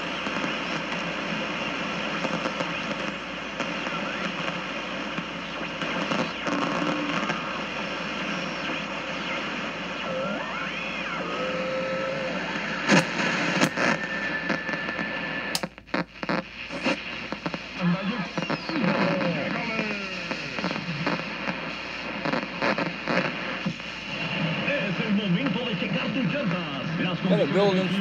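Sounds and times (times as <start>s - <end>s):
radio static hiss: 0.0s - 28.0s
sharp clicks and crackles: 12.9s - 13.9s, 15.5s - 16.5s.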